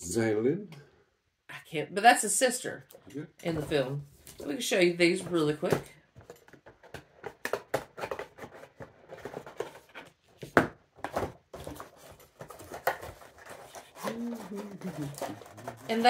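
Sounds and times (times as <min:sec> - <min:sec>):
cardboard and plastic packaging rustling: 0:03.5 - 0:16.0.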